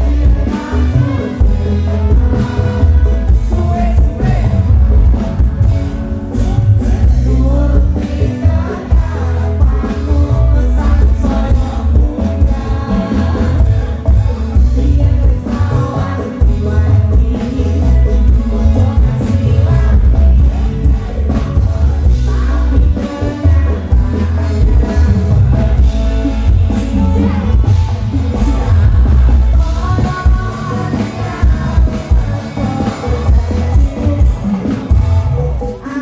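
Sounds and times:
heavy bass and drum beat: 0.0s - 36.0s
live band playing: 0.0s - 36.0s
man singing: 0.0s - 36.0s.

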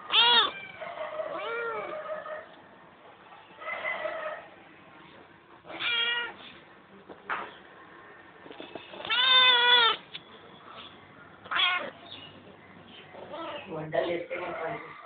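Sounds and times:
cat meowing: 0.0s - 2.0s, 5.6s - 6.4s, 8.9s - 10.0s, 11.5s - 12.0s, 13.2s - 13.7s.

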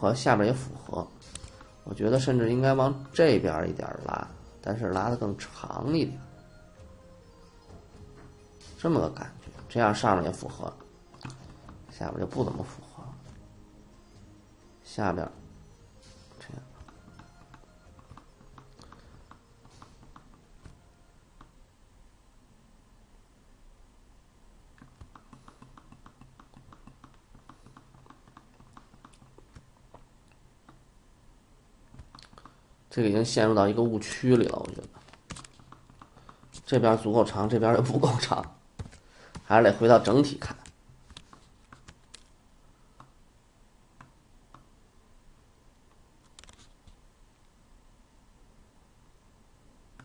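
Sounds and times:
rapid computer clicking: 24.8s - 30.0s, 34.4s - 37.1s, 40.5s - 42.3s.

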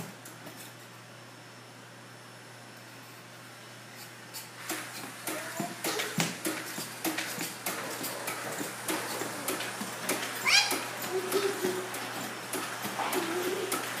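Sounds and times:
child squealing: 10.4s - 10.9s
child cooing: 10.4s - 11.9s.

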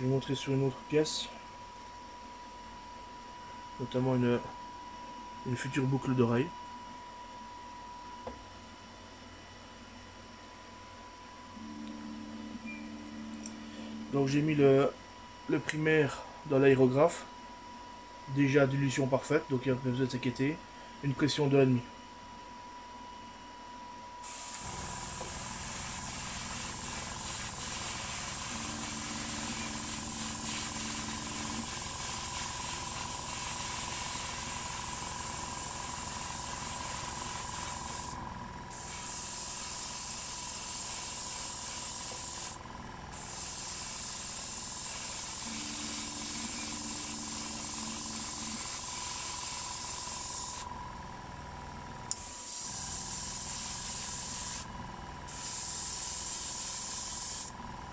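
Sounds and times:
small compressor running: 11.5s - 14.3s, 24.2s - 57.9s
airbrush hissing: 24.2s - 50.7s, 52.2s - 54.7s, 55.3s - 57.6s.

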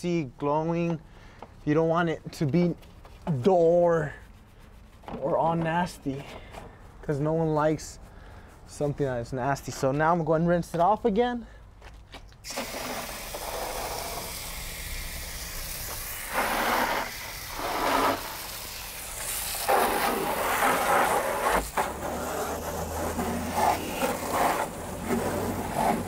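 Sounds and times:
water spray hissing: 12.4s - 26.0s.

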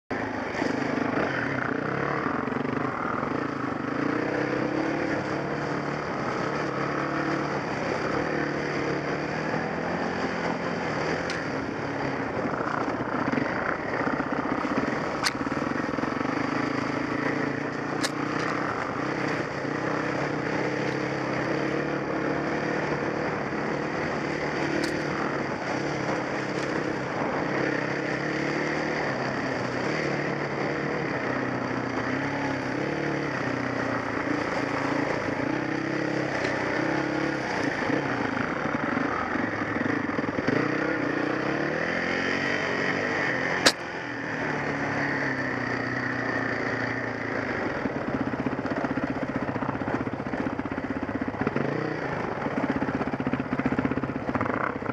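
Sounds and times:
dirt bike engine running: 0.1s - 54.9s
sharp clicks: 17.9s - 18.6s, 24.7s - 25.1s, 43.6s - 44.0s.

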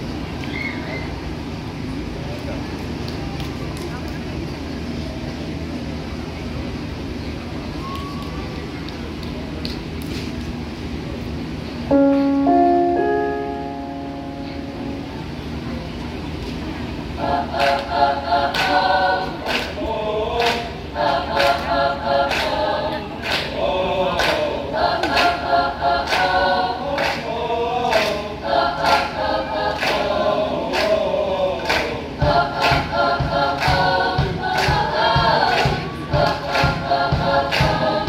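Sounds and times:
sharp rhythmic accents: 11.9s - 15.5s
choir singing in parts: 17.1s - 38.0s.

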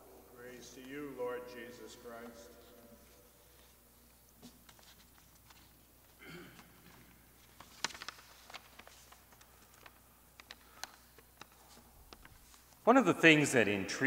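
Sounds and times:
rustling: 7.3s - 12.9s.

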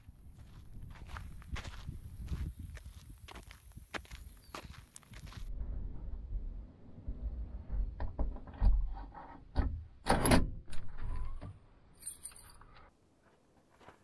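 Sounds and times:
keys jangling: 12.0s - 12.6s.

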